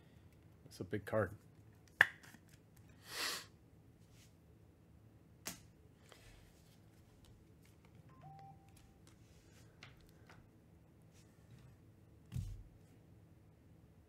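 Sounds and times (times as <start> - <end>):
trading cards handled: 5.5 - 10.5.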